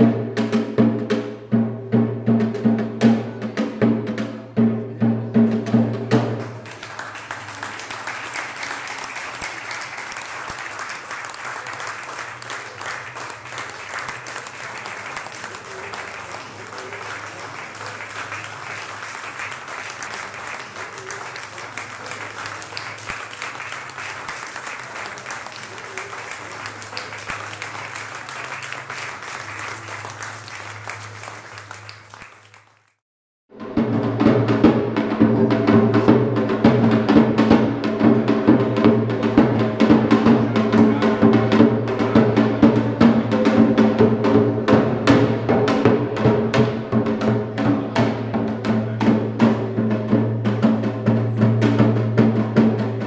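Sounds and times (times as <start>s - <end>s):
loud music with drums: 0.0s - 6.6s, 33.5s - 53.0s
audience applauding: 6.2s - 33.0s.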